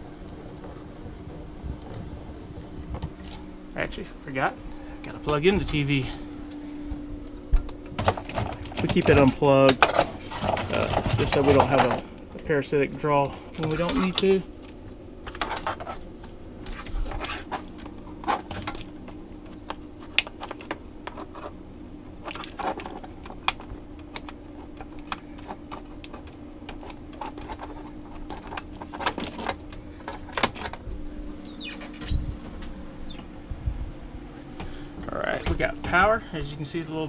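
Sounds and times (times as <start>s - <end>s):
low hum: 0.0s - 37.0s.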